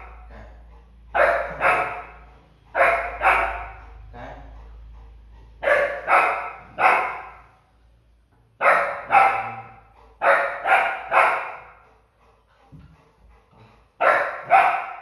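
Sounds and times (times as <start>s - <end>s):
puppy barking: 1.1s - 3.8s, 5.6s - 7.5s, 8.6s - 11.8s, 14.0s - 15.0s.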